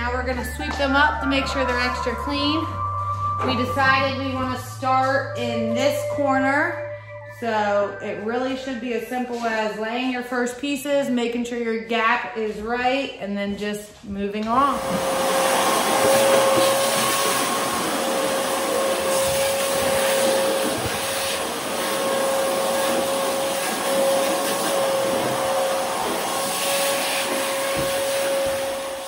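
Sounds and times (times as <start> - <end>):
shop vacuum running: 14.6 - 29.0.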